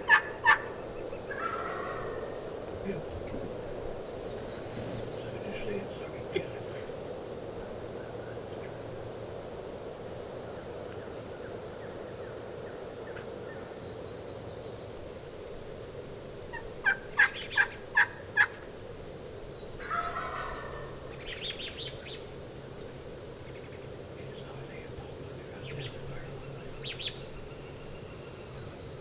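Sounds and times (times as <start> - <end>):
turkey yelping: 0.0 - 2.4, 16.5 - 18.6, 19.8 - 21.9
turkey gobbling: 0.0 - 2.5, 16.5 - 18.7, 19.8 - 21.9.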